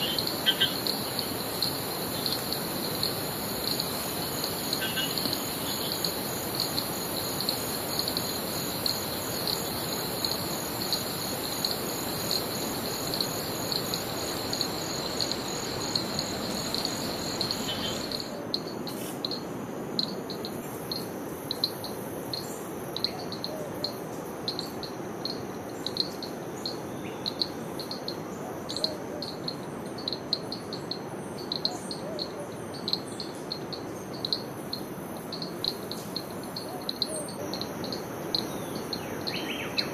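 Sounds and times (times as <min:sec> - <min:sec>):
insects chirping: 0:00.0 - 0:39.9.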